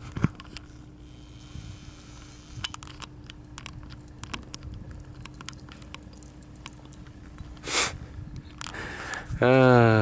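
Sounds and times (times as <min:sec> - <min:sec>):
dog tags jingling: 0:00.3 - 0:07.3.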